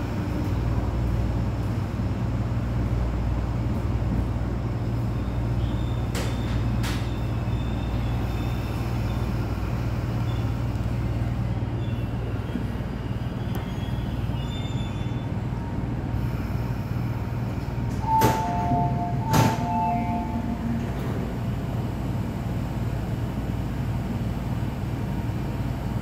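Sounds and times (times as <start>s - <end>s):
electric train rumbling on track: 0.0s - 26.0s
two-note tones: 18.0s - 21.1s.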